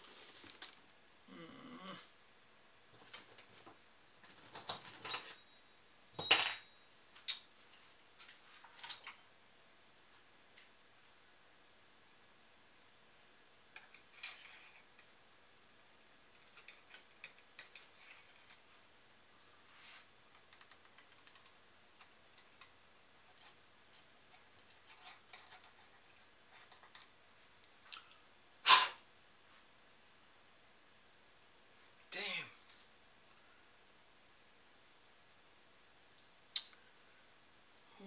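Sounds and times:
small metal clicks and rattles: 13.7 - 15.2, 16.3 - 18.7, 20.3 - 27.2.

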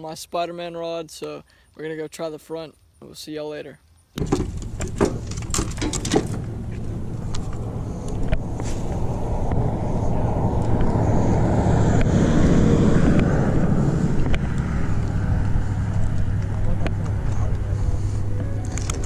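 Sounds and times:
fishing gear clattering: 4.2 - 6.8
utility vehicle humming: 4.2 - 19.0.

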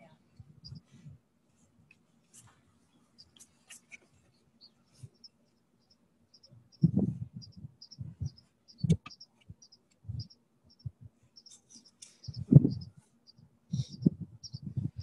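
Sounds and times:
small bird chirping: 0.6 - 0.9, 3.2 - 15.0.

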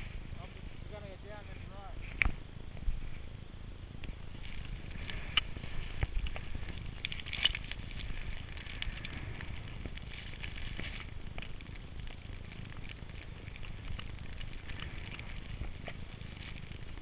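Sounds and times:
crackly snow scrapes: 0.0 - 3.4, 4.0 - 17.0
wind rumble on microphone: 0.0 - 17.0
skis rushing through snow: 4.1 - 17.0.

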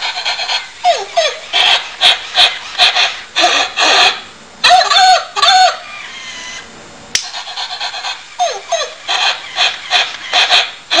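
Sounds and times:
toy dog electronic barks: 0.0 - 5.8, 7.4 - 11.0
sharp click: 7.1 - 7.3.

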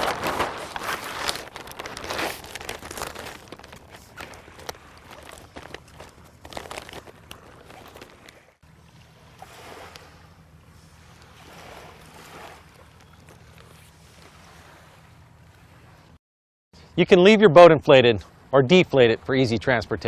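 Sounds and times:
sail cloth rustling: 0.0 - 8.6
small waves: 0.0 - 16.2, 18.1 - 19.8
wind: 0.0 - 20.0.

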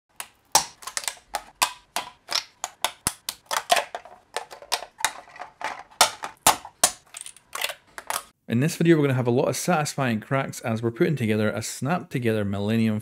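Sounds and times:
plastic parts cracking and clicking: 0.1 - 8.4.

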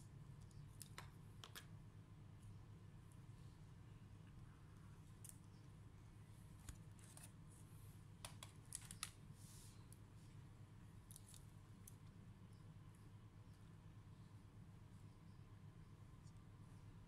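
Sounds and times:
low steady hum: 0.0 - 17.0
small plastic clicks: 0.4 - 1.7.

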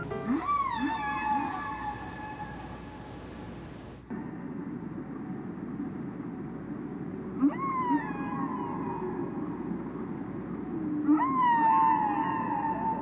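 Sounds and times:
whale calls underwater: 0.0 - 3.2, 7.3 - 13.0.

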